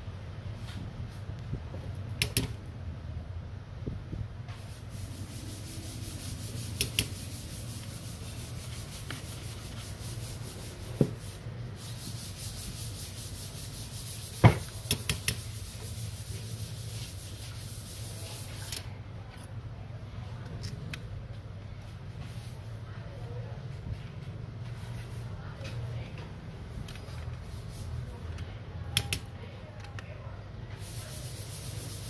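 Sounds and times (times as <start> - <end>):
scratchy rubbing: 4.7 - 18.7, 30.8 - 32.0.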